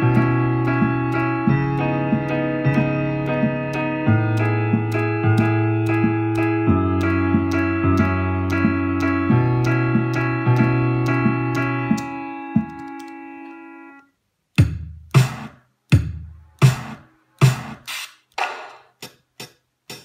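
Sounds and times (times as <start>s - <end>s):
bass line: 0.0s - 12.8s
synthesizer piano-like chords: 0.0s - 14.3s
steady drum beat: 14.6s - 20.0s.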